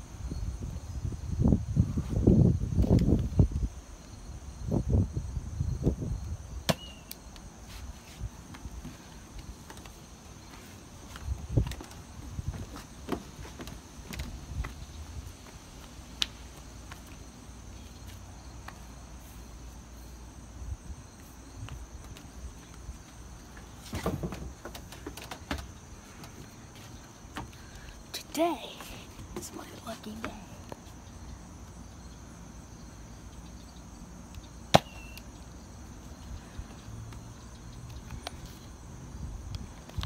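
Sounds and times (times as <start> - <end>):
insects trilling: 0.0 - 40.0
high whistle of flying dart: 6.7 - 7.1, 34.8 - 35.3.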